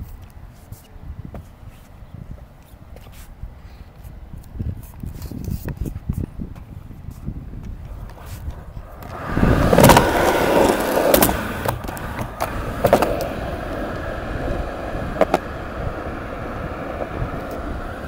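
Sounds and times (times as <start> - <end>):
skateboard wheels rumbling: 5.2 - 18.0
skateboard wheels clacking on seams: 7.6 - 18.0.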